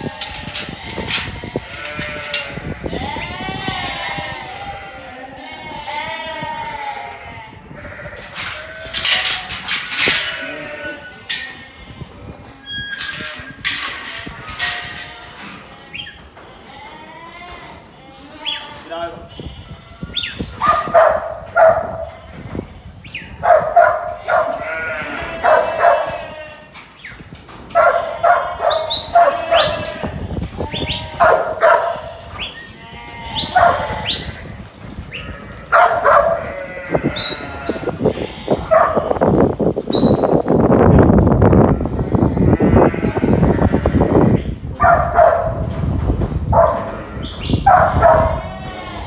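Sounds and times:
sheep bleating: 0.0 - 12.8, 14.1 - 20.4, 23.9 - 26.7, 27.8 - 39.4, 41.6 - 44.6, 48.0 - 49.0
sheep trampling across dirt: 26.6 - 40.8.

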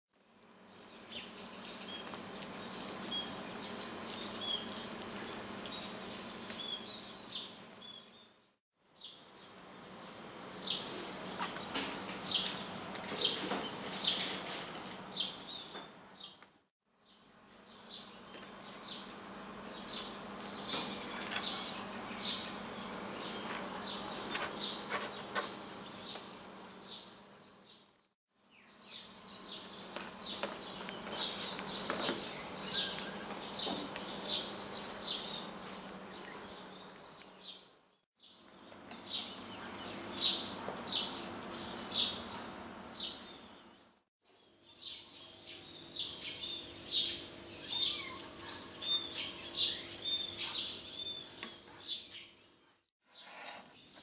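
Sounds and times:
small birds chirping: 0.4 - 54.0.

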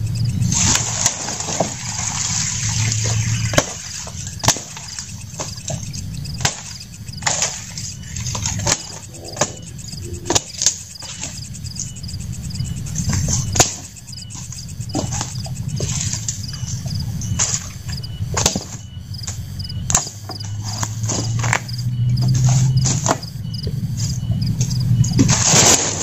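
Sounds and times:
leaves rustling: 0.4 - 9.6, 24.8 - 26.0
wooden branches cracking: 25.2 - 26.0.

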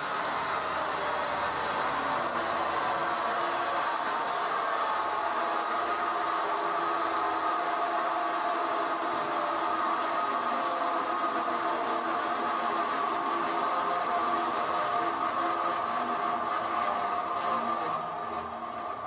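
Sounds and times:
band saw cutting log: 0.0 - 19.0.

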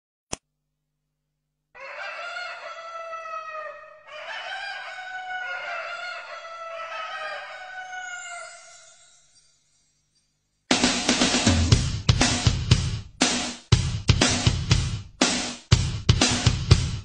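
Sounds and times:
rooster crowing: 1.8 - 9.5.

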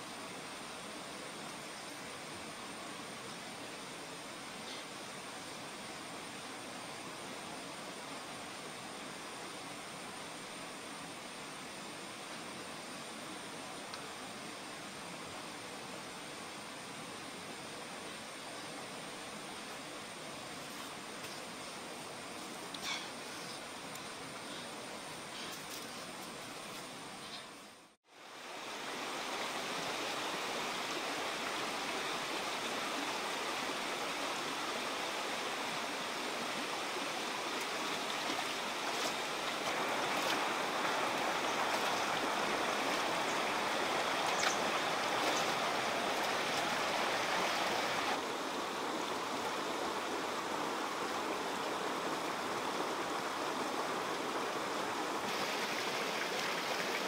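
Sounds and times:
stream rushing over stones: 28.1 - 57.0.

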